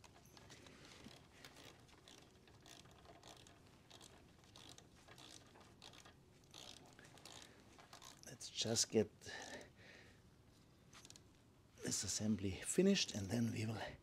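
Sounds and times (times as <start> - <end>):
ratcheting torque wrench clicking: 0.0 - 8.2.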